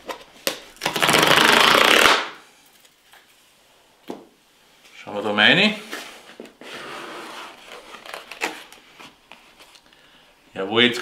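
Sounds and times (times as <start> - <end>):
cardboard tear strip ripping: 0.8 - 2.4.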